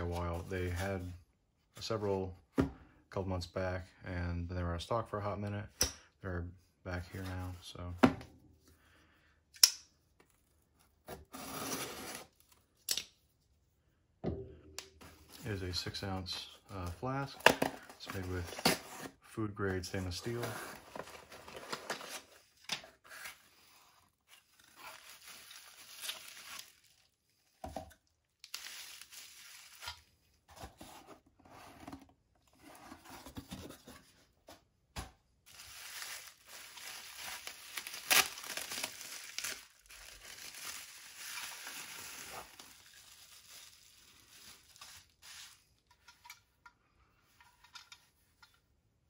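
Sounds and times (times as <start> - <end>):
cardboard box tearing: 11.2 - 12.4
bubble wrap crinkling: 23.1 - 27.5, 28.3 - 30.2, 35.4 - 45.8.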